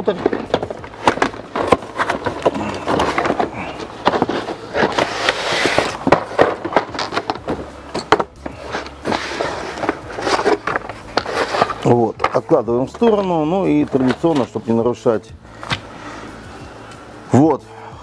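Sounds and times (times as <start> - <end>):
cardboard sliding and scraping: 0.0 - 7.7, 8.4 - 13.2.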